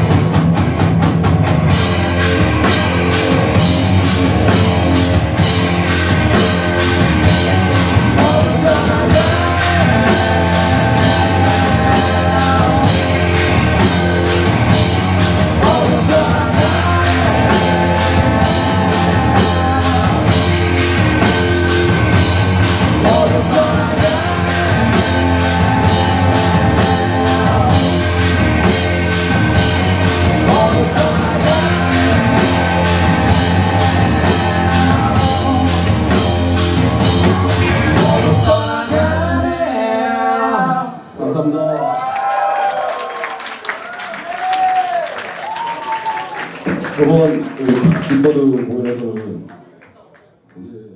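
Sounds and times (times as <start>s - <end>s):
rock band playing: 0.0s - 40.4s
person singing: 7.3s - 41.8s.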